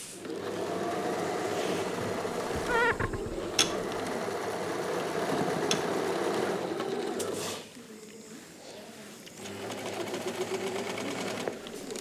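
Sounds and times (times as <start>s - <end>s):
wavering squeak: 2.4s - 3.9s.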